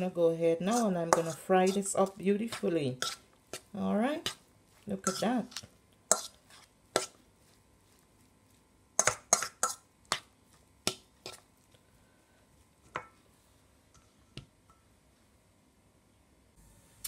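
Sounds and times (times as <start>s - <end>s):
fork clinking against metal bowl: 5.0s - 5.3s.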